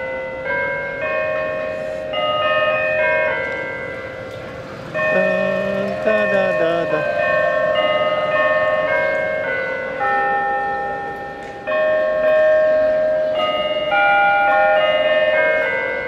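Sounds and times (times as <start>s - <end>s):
bells chiming slow melody: 0.0s - 16.0s.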